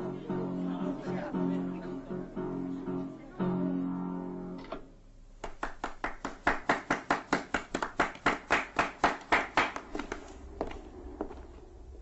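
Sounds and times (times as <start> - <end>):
footsteps on hard floor: 9.9 - 11.5.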